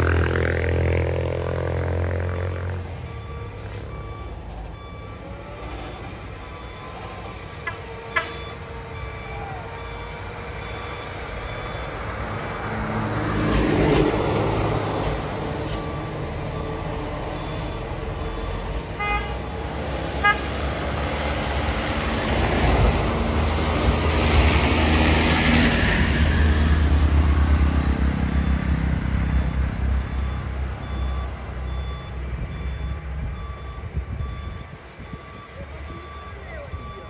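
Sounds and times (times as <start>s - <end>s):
reversing beeper beeping: 0.3s - 20.2s, 28.2s - 37.0s.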